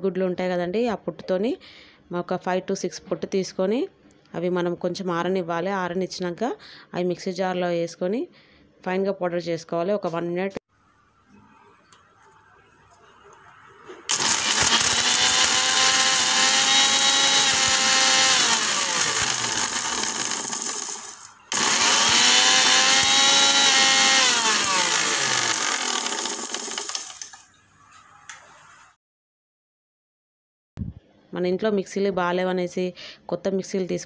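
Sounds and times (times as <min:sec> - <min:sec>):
mixer grinder grinding egg shells: 0:14.1 - 0:27.4.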